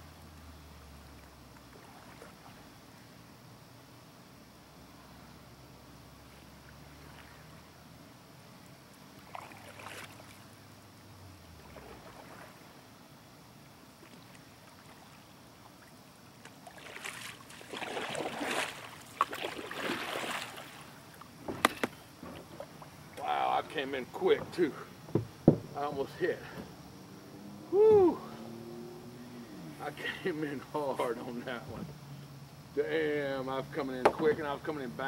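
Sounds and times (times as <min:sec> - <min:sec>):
canoe paddle strokes splashing: 0:01.2 - 0:02.8, 0:06.2 - 0:07.8, 0:09.1 - 0:10.5, 0:11.5 - 0:13.0, 0:13.8 - 0:25.4.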